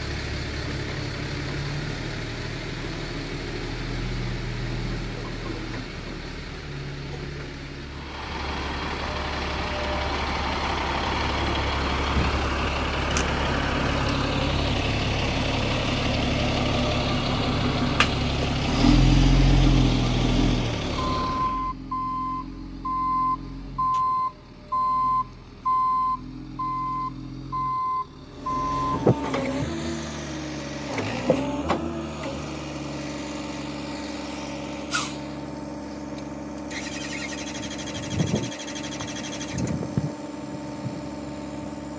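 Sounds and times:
diesel engine running under load: 0.0 - 41.9
reversing alarm beeping: 21.0 - 29.3.

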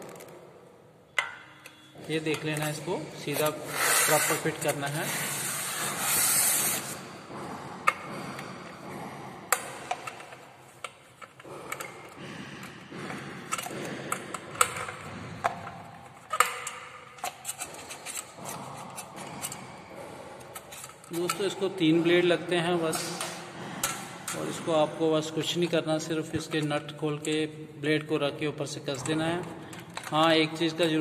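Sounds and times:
scraping and rubbing of parts: 1.2 - 21.6.

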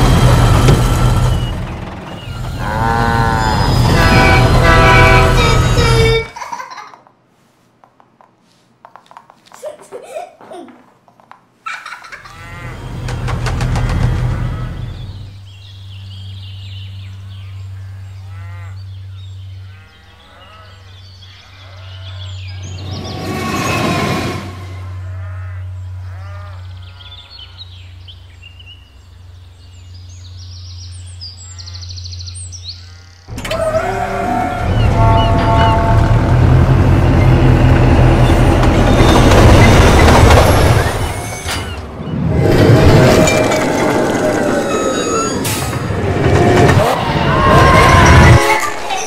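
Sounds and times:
train rumbling along rails: 0.0 - 6.4, 12.3 - 16.4, 22.3 - 25.2, 33.3 - 49.0
cattle mooing: 2.4 - 6.1, 12.3 - 13.1, 17.8 - 18.9, 19.6 - 22.3, 24.7 - 27.7, 32.8 - 37.0.

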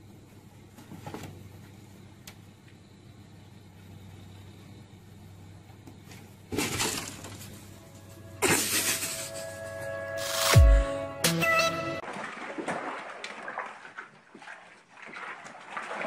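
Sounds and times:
faint low hum: 0.0 - 10.1.

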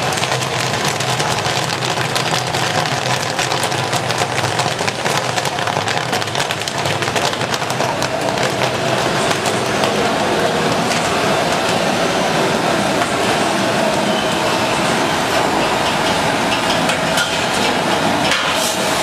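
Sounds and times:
popcorn kernels popping: 0.0 - 11.8.

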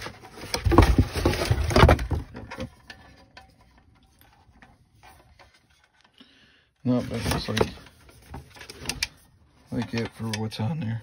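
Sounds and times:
rustling in cardboard box: 0.0 - 2.8.

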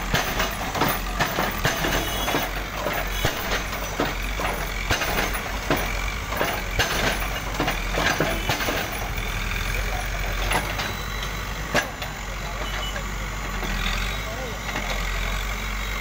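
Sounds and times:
brick and debris clattering: 0.0 - 9.2
diesel engine running: 0.0 - 16.0.

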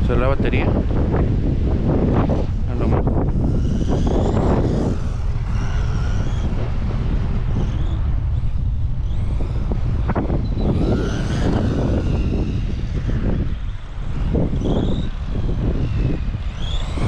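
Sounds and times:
low rumble: 0.0 - 17.0
rc car motor whine: 0.0 - 17.0.

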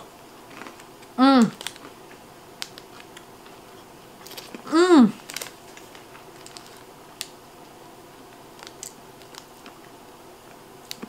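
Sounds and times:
chewing crispy chocolate bar: 0.4 - 3.6, 4.2 - 7.4, 8.3 - 9.9.

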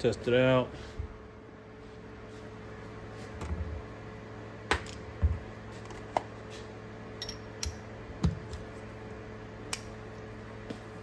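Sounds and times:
faint steady hum: 0.0 - 11.0
metal tools clinking and clicking: 7.2 - 7.8.

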